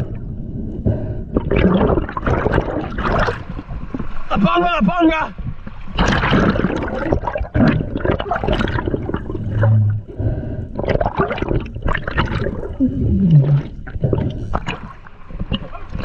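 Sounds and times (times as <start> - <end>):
low hum: 0.0 - 4.6
water sloshing and splashing: 1.3 - 16.0.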